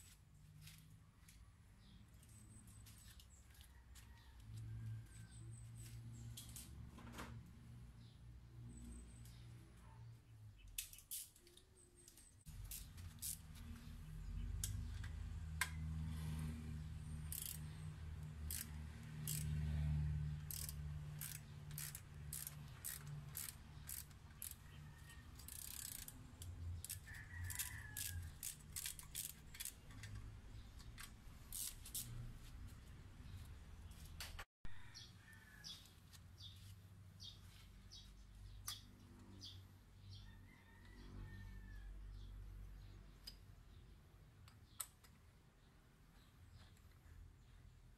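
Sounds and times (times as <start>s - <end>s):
ratchet wrench clicking: 10.8s - 13.6s, 17.1s - 32.3s.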